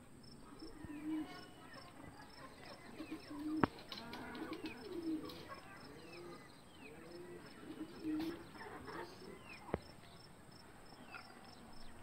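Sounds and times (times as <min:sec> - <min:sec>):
chickens clucking: 0:00.4 - 0:09.9.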